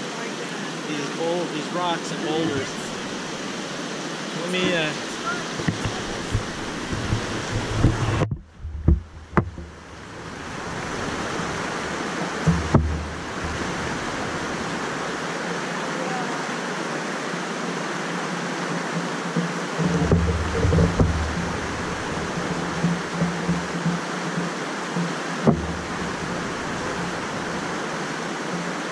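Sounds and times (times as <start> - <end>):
floodwater rushing: 0.0 - 28.9
camera knocks: 5.6 - 9.8, 12.5 - 13.6, 22.4 - 26.4.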